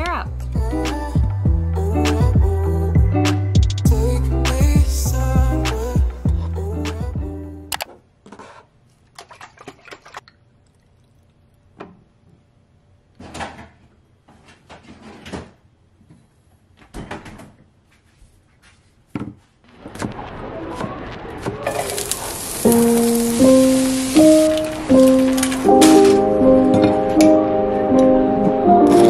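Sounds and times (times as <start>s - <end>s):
leeks sizzling in frying pan: 21.7s - 25.7s.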